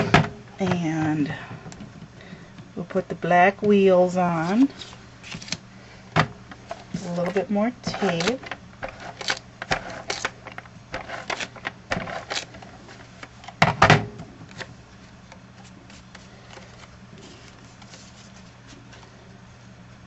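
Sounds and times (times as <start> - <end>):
paper rustling: 6.6 - 13.3, 15.6 - 19.2
adhesive tape crackling: 6.7 - 13.4.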